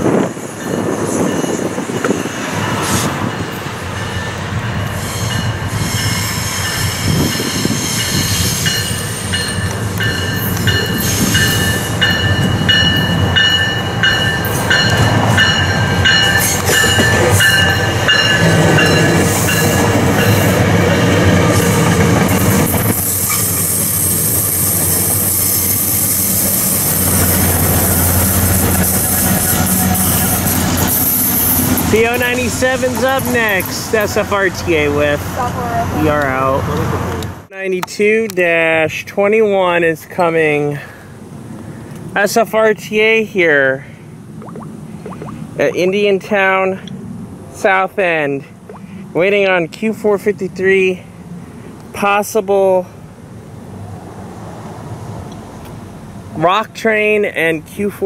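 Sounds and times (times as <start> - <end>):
train rumbling and rattling: 0.0 - 37.5
wheel squeal: 5.0 - 9.6.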